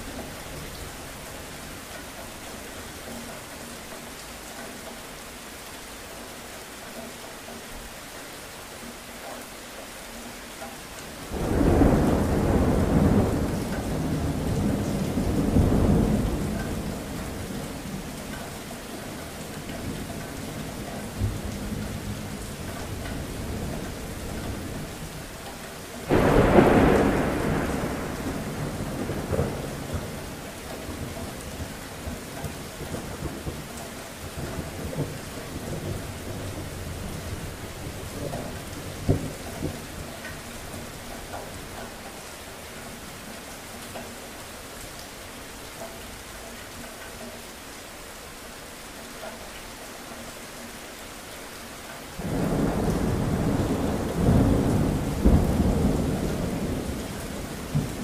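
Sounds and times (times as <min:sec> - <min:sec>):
steady rain: 0:00.0 - 0:58.0
thunder rumbling: 0:11.3 - 0:18.2, 0:26.1 - 0:33.7, 0:52.2 - 0:58.0.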